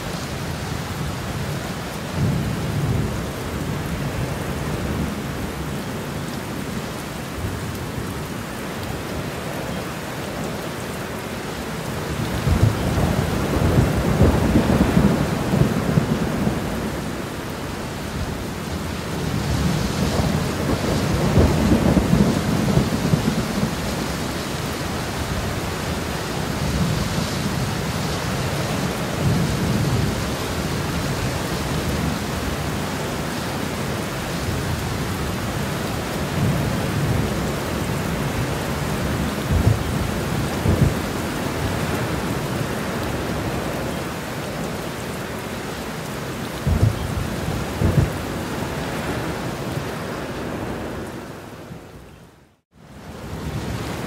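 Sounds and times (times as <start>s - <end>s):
steady rain: 0.0s - 54.0s
thunder rumbling: 12.2s - 17.5s, 18.2s - 32.8s, 33.8s - 44.8s, 46.4s - 51.2s.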